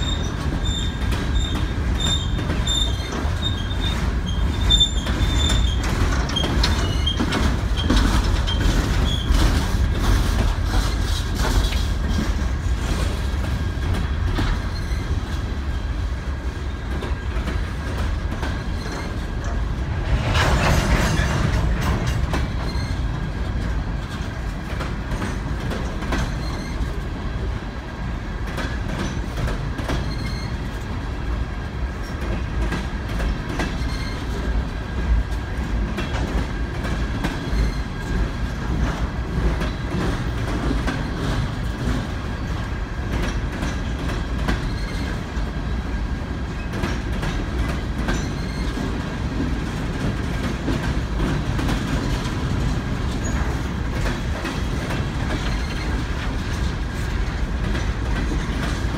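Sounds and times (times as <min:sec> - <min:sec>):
high wheel squeals: 0:00.0 - 0:07.2
wheels clicking over rail joints: 0:00.0 - 0:15.6, 0:16.8 - 0:27.1, 0:32.0 - 0:58.9
freight train rumbling on rails: 0:00.0 - 0:58.9.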